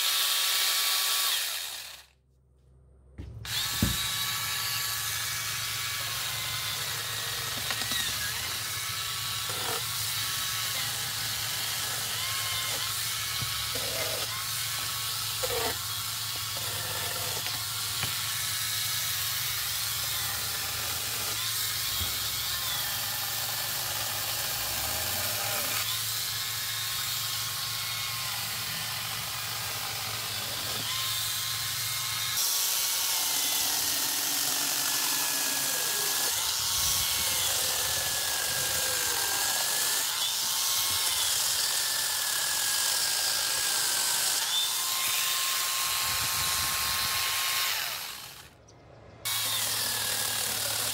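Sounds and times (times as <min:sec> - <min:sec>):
small chainsaw cutting branches: 0:00.0 - 0:02.2, 0:03.4 - 0:48.6, 0:49.2 - 0:50.9.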